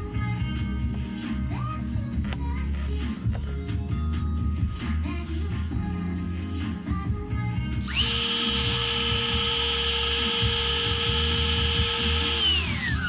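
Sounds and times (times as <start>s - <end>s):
quadcopter motors whining: 7.8s - 13.0s.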